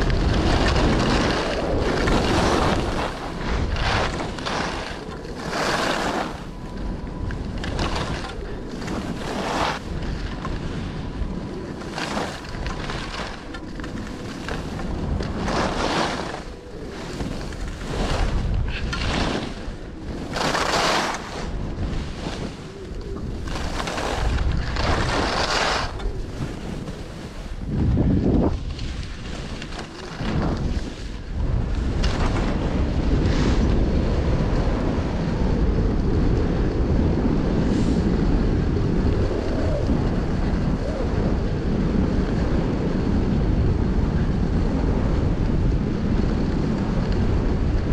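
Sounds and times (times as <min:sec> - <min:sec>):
edges scraping across snow: 0:00.0 - 0:06.5, 0:07.5 - 0:10.9, 0:11.6 - 0:31.2
wind buffeting microphone: 0:00.0 - 0:47.9.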